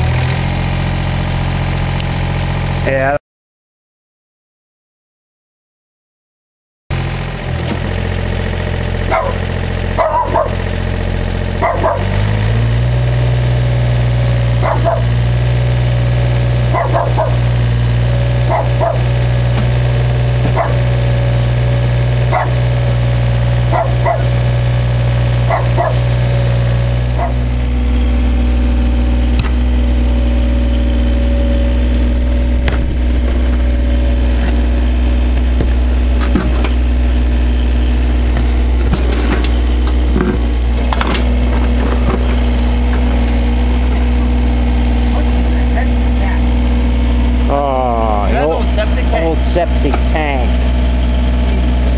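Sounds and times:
excavator diesel engine running: 0.0 - 3.1, 6.9 - 51.9
dog barking: 9.1 - 9.4, 10.0 - 10.6, 11.6 - 12.2, 14.6 - 15.2, 16.7 - 17.4, 18.4 - 19.1, 20.5 - 20.9, 22.3 - 22.7, 23.7 - 24.4, 25.4 - 26.1, 27.2 - 27.4.

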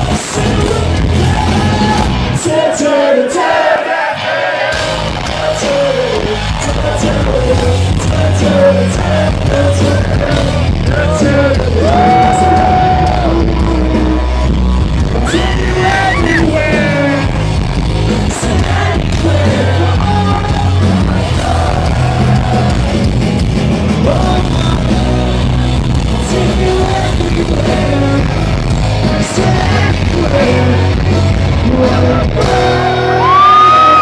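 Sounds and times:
bass guitar: 0.0 - 2.6, 4.6 - 34.0
electric guitars: 0.0 - 2.7, 4.0 - 34.0
drums: 0.0 - 34.0
person singing: 5.2 - 17.4, 24.0 - 34.0.

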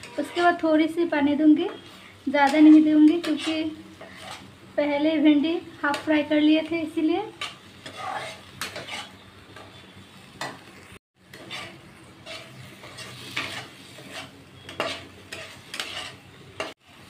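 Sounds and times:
steel spatula scraping a pan: 0.0 - 4.6, 7.2 - 17.0
low frying sizzle: 0.0 - 17.0.

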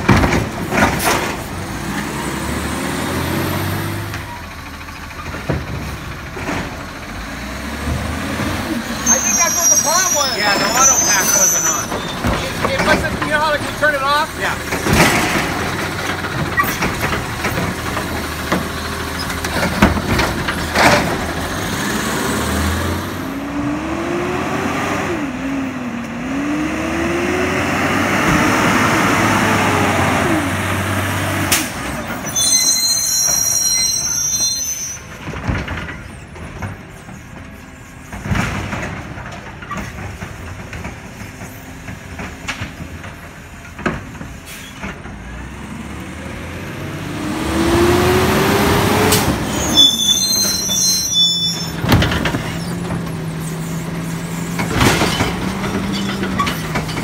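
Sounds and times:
garbage truck engine revving: 0.0 - 33.5, 44.0 - 57.0
high squeal: 8.9 - 12.5, 32.1 - 35.2, 49.5 - 52.8.

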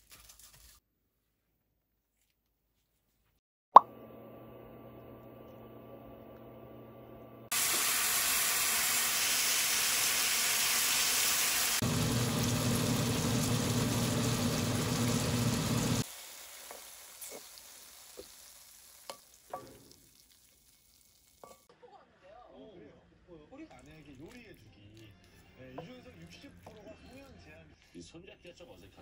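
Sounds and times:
meat sizzling in a wok: 7.5 - 21.7.

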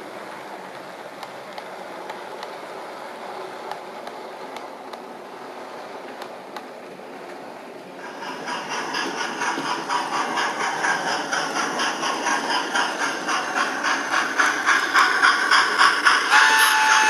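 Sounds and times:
model train wheels rumbling: 0.0 - 17.0
wheels clicking over rail joints: 6.1 - 17.0.

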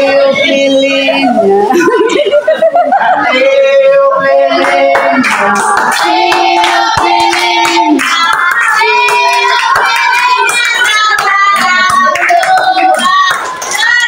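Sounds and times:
children singing: 0.0 - 14.0
hands clapping: 4.6 - 14.0.

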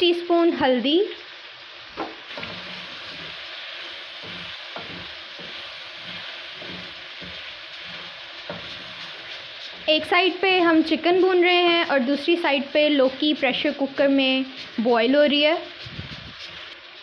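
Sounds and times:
food sizzling in oil: 0.0 - 17.0
spatula knocking pan: 2.0 - 3.5, 4.1 - 15.8
wooden spatula scraping: 2.3 - 17.0.

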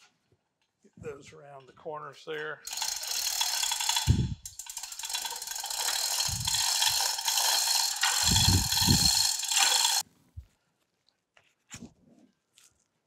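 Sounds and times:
chain hoist ratchet clicking: 2.6 - 10.0
hand chain rattling: 2.7 - 10.0.

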